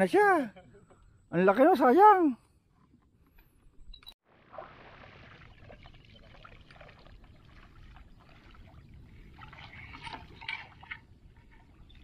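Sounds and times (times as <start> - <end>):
wading through shallow water: 4.2 - 12.0.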